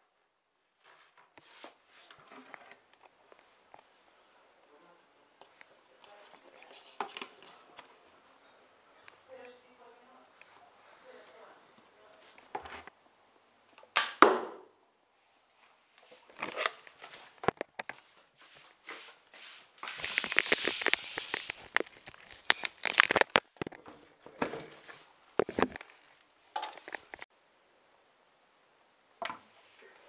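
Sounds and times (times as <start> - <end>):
sharp snaps of crossbow: 14.0 - 14.5
rustling handling noise: 15.6 - 23.8.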